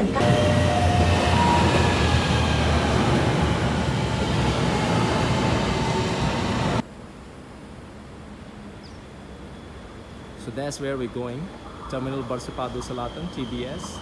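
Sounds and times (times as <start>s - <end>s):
train wheels rumbling on rails: 0.0s - 6.8s, 10.4s - 14.0s
faint whine: 0.0s - 14.0s.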